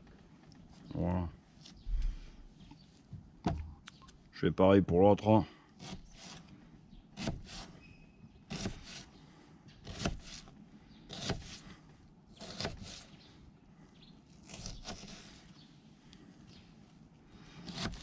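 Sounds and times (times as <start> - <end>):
knife slicing onion on cutting board: 9.9 - 10.5, 11.1 - 11.6, 12.4 - 13.1, 17.6 - 18.0.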